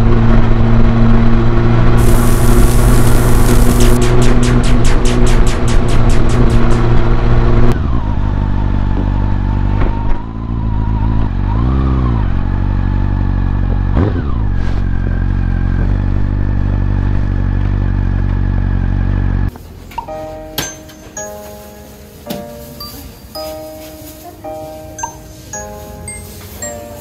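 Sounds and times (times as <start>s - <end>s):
motorcycle engine running: 0.0s - 19.6s.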